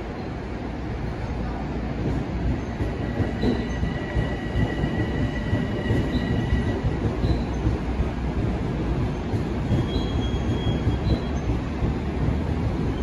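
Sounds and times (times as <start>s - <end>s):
electric train rumbling: 0.0s - 13.0s
high squeal from train wheels: 2.5s - 8.2s, 8.9s - 12.0s.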